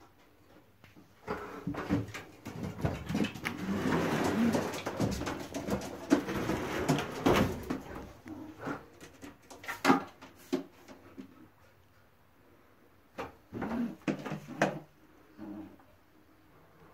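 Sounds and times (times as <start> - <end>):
knocks and clatter: 1.8 - 8.0.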